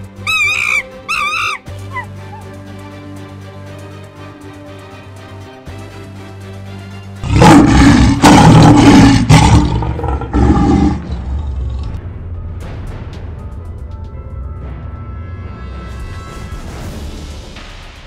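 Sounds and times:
background music: 0.0s - 18.0s
lion roaring: 7.2s - 12.0s.

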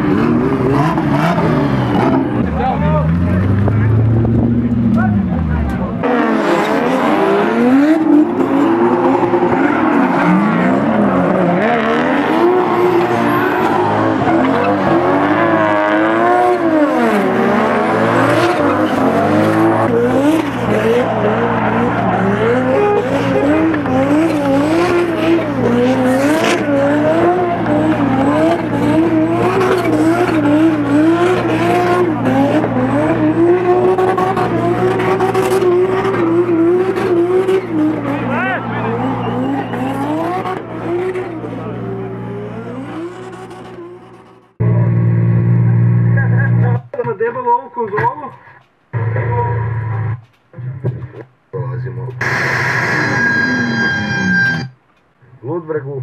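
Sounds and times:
car engine revving: 0.0s - 46.8s, 52.2s - 54.8s
tyres squealing: 18.1s - 41.5s, 52.2s - 54.8s.

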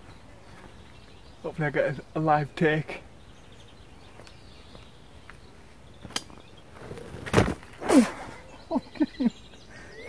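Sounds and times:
heavy thud on grass: 7.2s - 7.9s.

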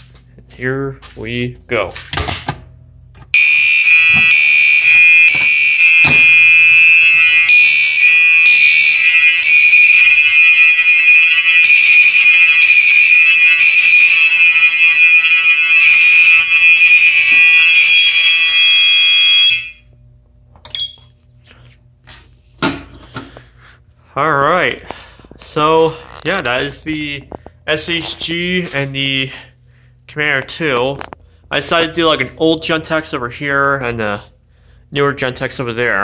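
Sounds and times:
fire alarm horns: 3.3s - 21.8s, 24.5s - 30.6s.

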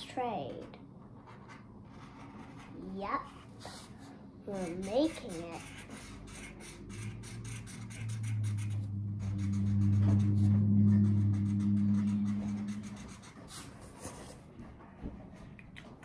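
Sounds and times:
low steady hum: 0.1s - 13.6s
felt-tip marker scribbling on cardboard: 2.0s - 9.6s.

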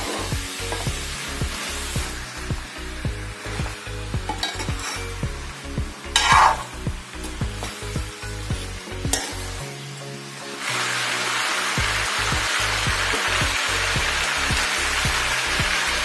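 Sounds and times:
frying sizzle: 0.0s - 16.0s
spatula scraping metal pan: 4.3s - 5.2s, 6.1s - 6.8s.

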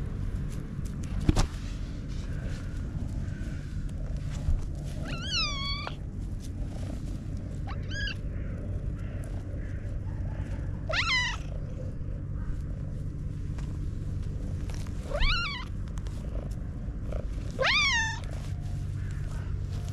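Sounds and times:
cat purring: 1.8s - 19.9s
cat meowing: 5.0s - 6.0s, 7.7s - 8.2s, 10.8s - 11.7s, 15.1s - 15.7s, 17.6s - 18.3s.

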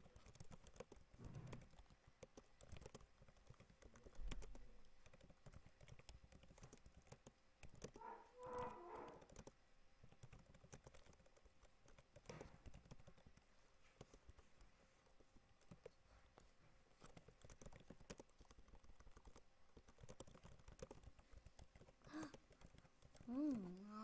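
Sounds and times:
keyboard key clicks: 0.1s - 13.2s.

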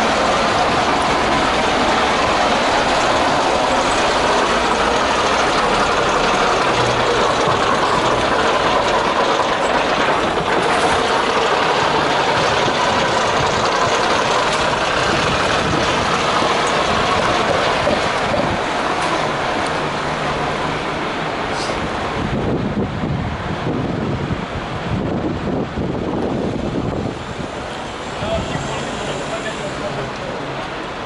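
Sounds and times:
fire engine engine running: 0.0s - 31.0s.

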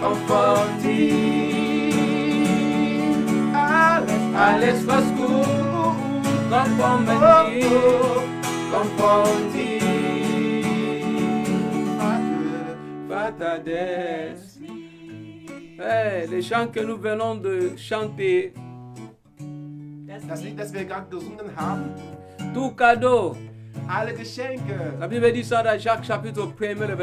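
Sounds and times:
men singing worship song: 0.0s - 16.6s
acoustic guitar strumming: 0.0s - 27.0s.

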